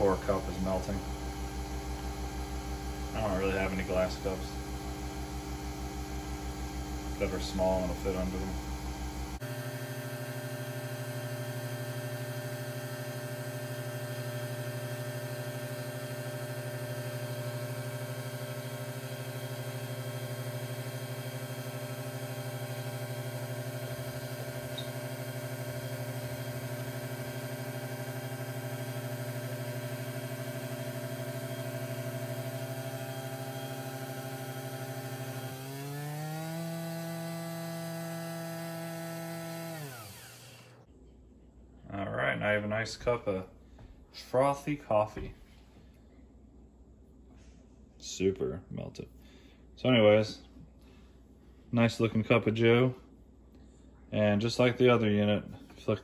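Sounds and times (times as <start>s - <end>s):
coffee machine brewing: 0.0s - 35.7s.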